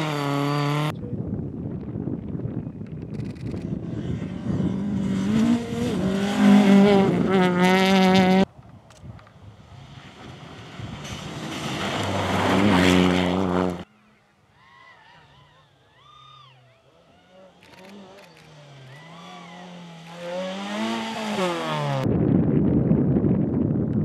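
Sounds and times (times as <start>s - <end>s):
rally car engine revving high: 0.0s - 0.9s, 3.6s - 8.5s, 9.8s - 13.9s, 17.0s - 22.0s.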